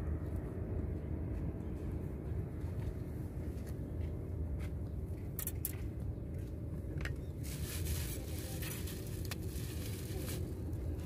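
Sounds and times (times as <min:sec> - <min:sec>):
low outdoor rumble: 0:00.0 - 0:11.0
plastic bag rustling: 0:07.4 - 0:11.0.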